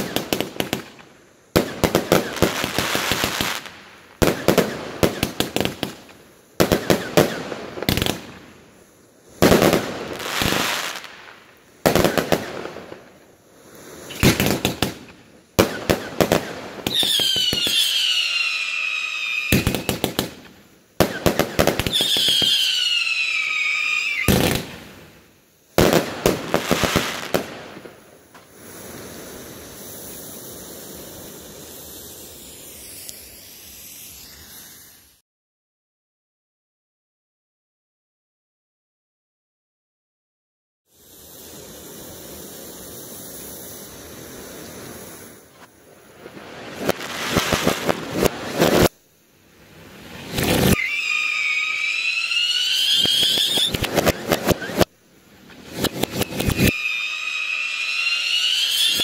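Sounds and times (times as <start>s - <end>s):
falling firework whistle: 0.0s - 8.5s, 9.4s - 25.1s, 25.8s - 35.2s, 50.0s - 54.9s, 55.5s - 59.0s
faint steady hiss: 0.0s - 35.2s, 40.9s - 59.0s
firework volleys and bursts: 0.0s - 35.2s, 40.9s - 59.0s.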